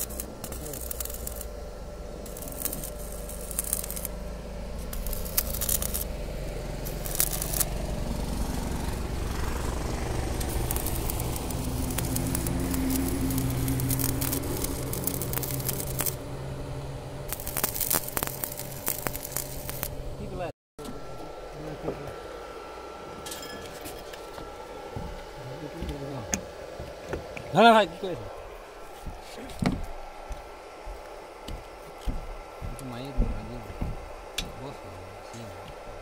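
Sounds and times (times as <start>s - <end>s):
welding arc crackling: 0.0s - 20.5s
low steady hum: 0.0s - 36.0s.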